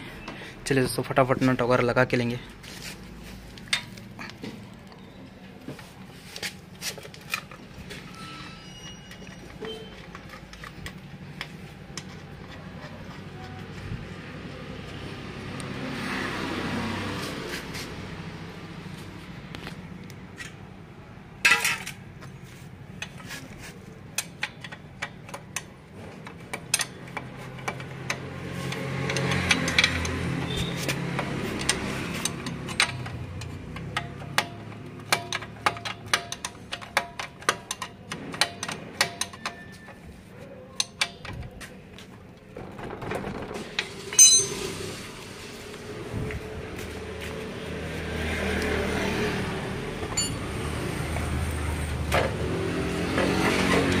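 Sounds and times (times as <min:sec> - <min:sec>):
hand tools clinking on metal: 0:44.1 - 0:44.8, 0:50.1 - 0:50.4.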